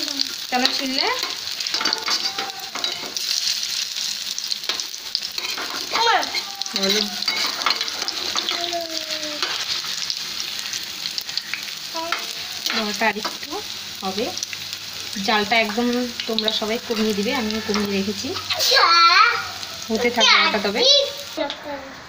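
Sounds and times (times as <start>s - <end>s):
fritters sizzling in hot oil: 0.0s - 22.0s
metal spatula scraping a pan: 0.6s - 3.6s, 4.6s - 8.6s, 9.4s - 11.3s, 16.9s - 18.7s.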